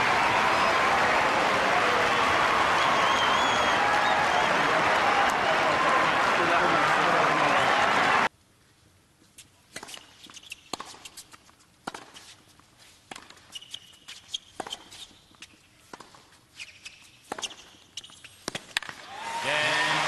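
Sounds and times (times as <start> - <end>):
racket striking tennis ball: 11.8 - 12.2, 17.2 - 19.0
tennis ball bouncing: 11.8 - 12.2, 15.9 - 16.2, 17.2 - 19.0.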